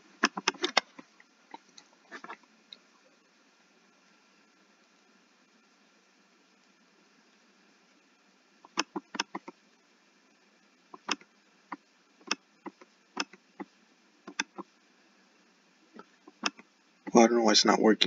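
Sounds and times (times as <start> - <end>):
computer mouse clicking: 0.2 - 2.4, 8.6 - 9.6, 11.0 - 13.7, 14.3 - 14.7, 16.3 - 16.7.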